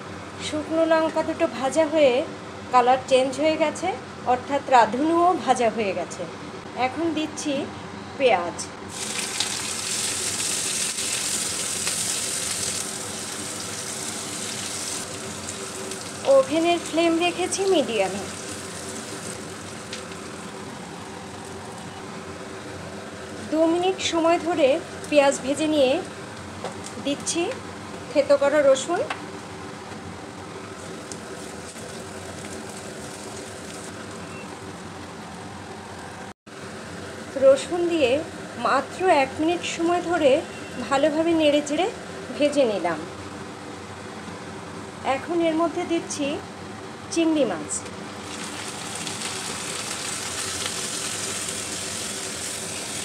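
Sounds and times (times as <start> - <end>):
onions sizzling in hot oil: 8.9 - 21.9, 30.8 - 34.4, 48.2 - 53.0.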